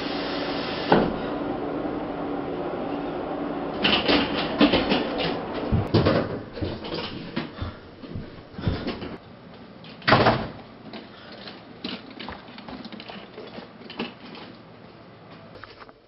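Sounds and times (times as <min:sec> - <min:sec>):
footsteps on stairs: 0:03.8 - 0:09.7.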